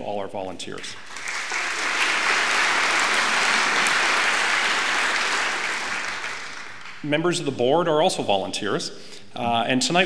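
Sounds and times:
audience applauding: 0:01.0 - 0:07.1.

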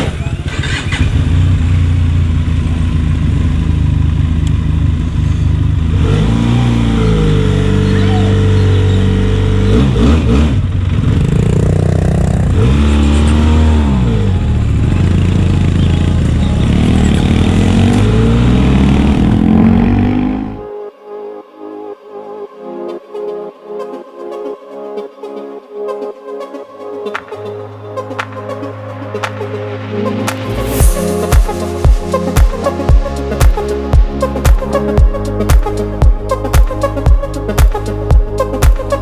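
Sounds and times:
motorcycle engine accelerating: 0:00.0 - 0:20.7.

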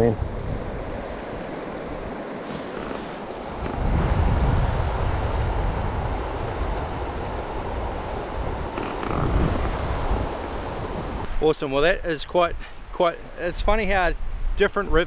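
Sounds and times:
wind rumble on microphone: 0:00.0 - 0:11.3
shallow river rushing: 0:00.0 - 0:13.2.

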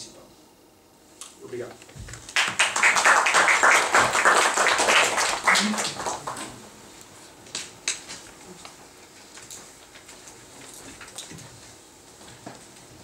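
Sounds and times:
audience applauding: 0:02.3 - 0:06.6.

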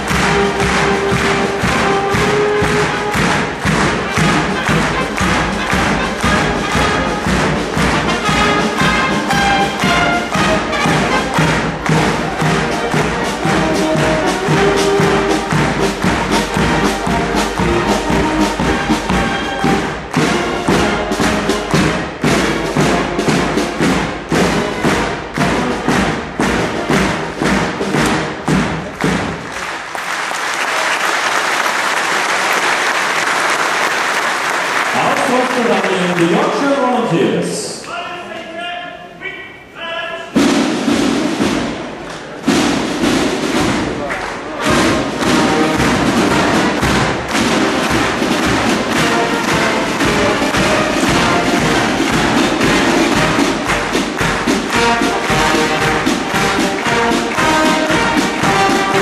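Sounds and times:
audience applause: 0:00.0 - 0:22.1, 0:26.8 - 0:37.4, 0:43.4 - 0:59.0
bass drum beat: 0:00.0 - 0:29.4, 0:42.5 - 0:59.0
brass band playing a march: 0:00.0 - 0:31.1, 0:39.7 - 0:59.0.

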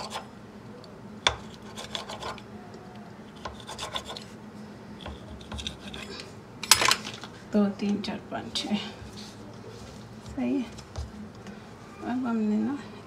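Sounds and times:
pizza cutter scraping on stone: 0:03.4 - 0:04.3.

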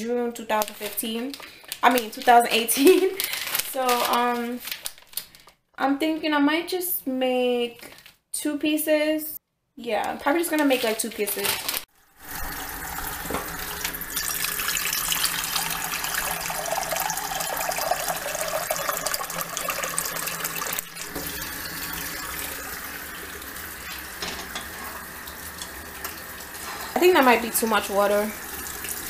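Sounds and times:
faucet filling metal saucepan: 0:12.0 - 0:29.0.

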